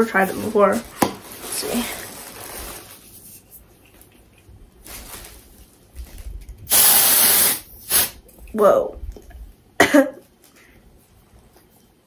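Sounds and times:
aerosol can spraying hiss: 6.7s - 8.2s.

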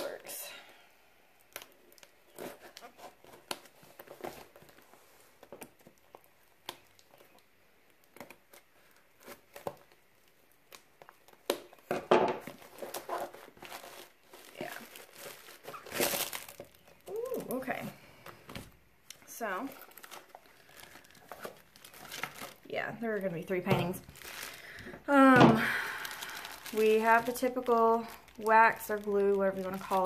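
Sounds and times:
tape and cardboard crinkling: 0.0s - 30.0s
cardboard tearing and crackling: 1.5s - 17.7s, 19.7s - 22.8s, 23.8s - 24.8s, 25.8s - 30.0s.

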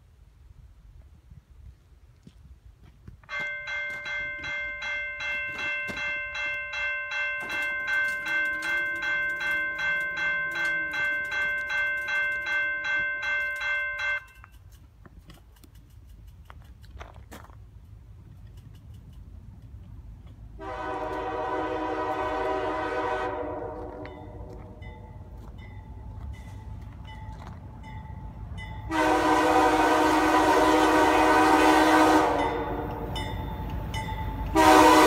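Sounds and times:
crossing warning bell ringing: 3.2s - 14.7s, 20.6s - 35.0s.

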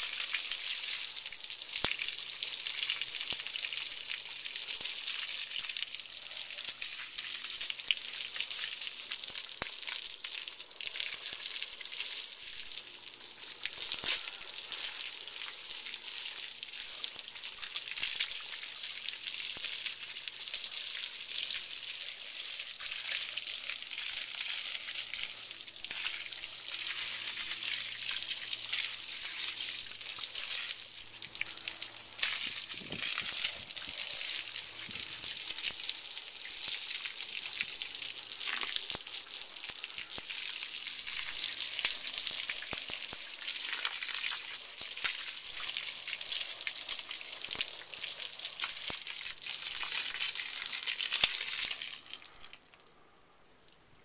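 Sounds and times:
water spraying from garden hose: 0.0s - 52.6s
water splashing on muddy ground: 25.8s - 39.2s.

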